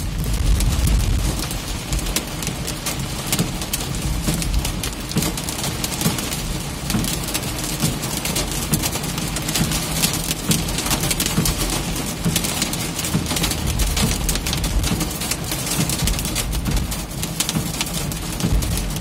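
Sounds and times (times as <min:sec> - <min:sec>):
hail and rain on vehicle roof: 0:00.0 - 0:19.0
low van hum: 0:09.3 - 0:19.0.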